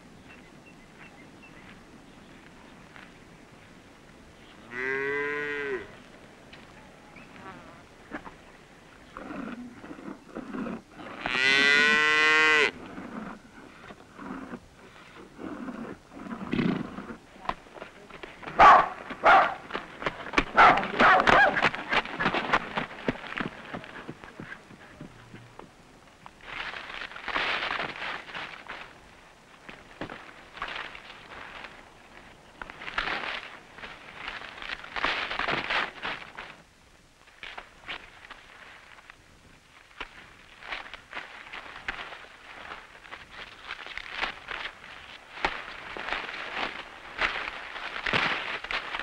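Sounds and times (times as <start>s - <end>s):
horse hooves on dirt: 5.8s - 49.0s
dry maize stalks rustling: 6.0s - 49.0s
dog barking: 18.6s - 19.6s, 20.6s - 21.6s.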